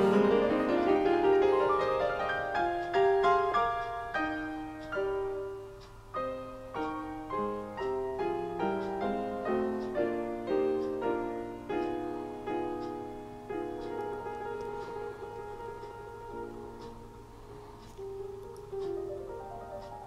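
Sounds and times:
slow piano music: 0.0s - 20.0s.

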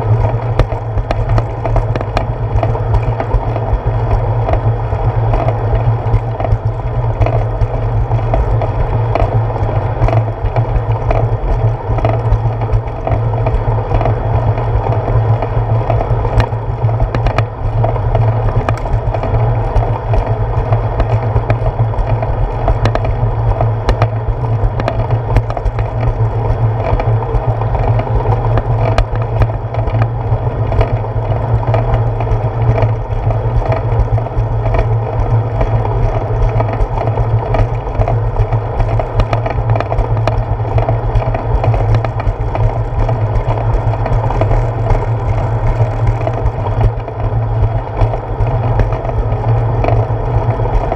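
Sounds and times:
bicycle rolling on concrete: 0.0s - 50.9s
clicks and knocks from bumps: 10.0s - 50.1s.

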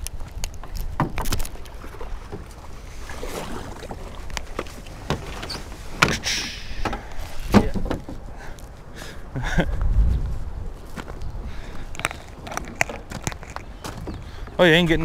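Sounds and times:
boat and paddle knocking: 3.7s - 8.3s
wind rumbling on microphone: 6.9s - 15.0s.

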